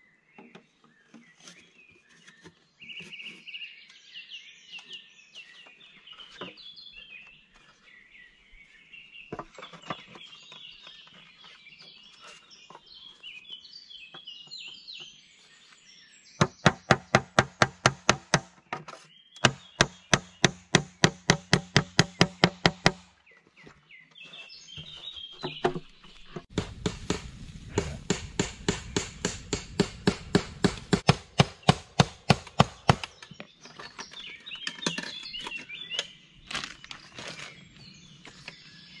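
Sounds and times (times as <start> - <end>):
birds singing: 0.0 - 39.0
hand tool knocking on wood: 16.5 - 18.6, 19.4 - 23.1, 26.5 - 33.2.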